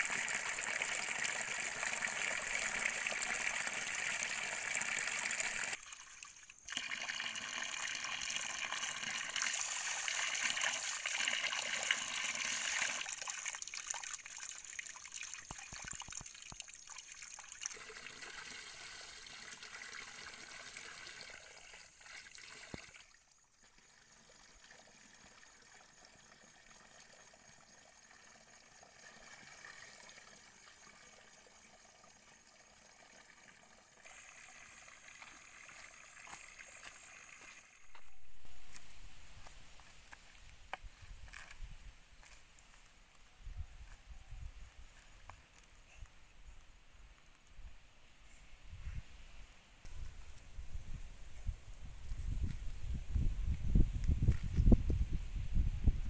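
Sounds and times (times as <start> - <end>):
water splashing from a pipe: 0.0 - 38.8.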